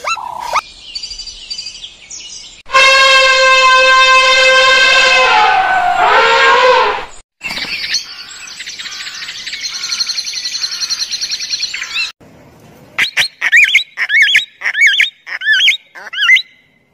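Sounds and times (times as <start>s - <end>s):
cockatoo whistled calls: 0.0s - 0.6s, 13.0s - 16.7s
elephant trumpeting: 4.9s - 7.2s.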